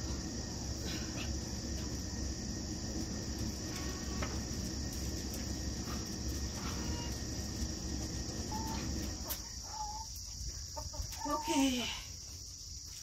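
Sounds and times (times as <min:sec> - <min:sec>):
insects chirring: 0:00.0 - 0:13.0
chicken calls: 0:06.0 - 0:11.5.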